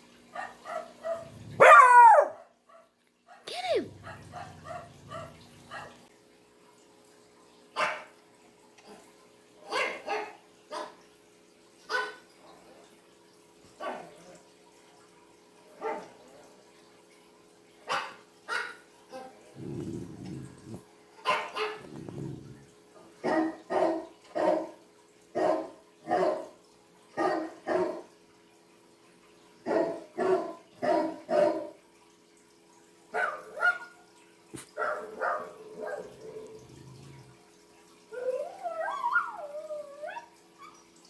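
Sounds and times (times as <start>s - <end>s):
dog barking: 0.4s - 6.0s, 7.8s - 8.1s, 9.7s - 11.0s, 11.9s - 12.2s, 13.8s - 14.2s, 15.8s - 16.1s, 17.9s - 18.8s, 19.6s - 22.4s, 23.2s - 24.7s, 25.4s - 26.5s, 27.2s - 28.1s, 29.7s - 31.8s, 33.1s - 33.9s, 34.6s - 36.2s.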